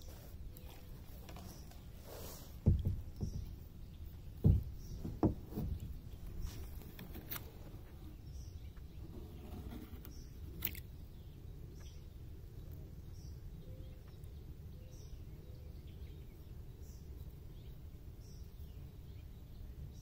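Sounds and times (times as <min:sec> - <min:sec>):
kayak hull knocks: 0:02.4 - 0:07.4.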